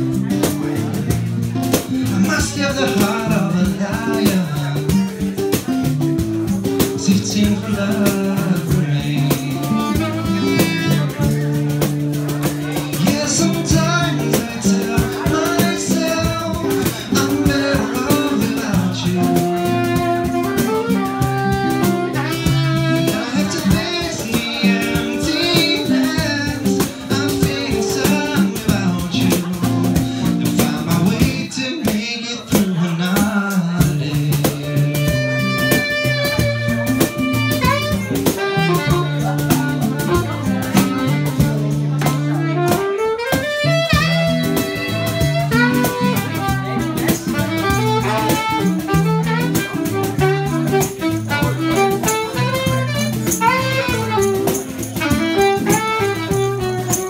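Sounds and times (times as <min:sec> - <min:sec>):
acoustic guitar strumming: 0:00.0 - 0:57.0
saxophone melody: 0:02.9 - 0:31.2, 0:34.5 - 0:57.0.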